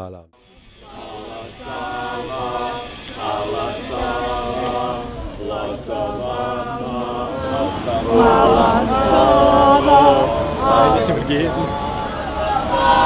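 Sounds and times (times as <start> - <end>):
group chanting: 0.4 - 13.0.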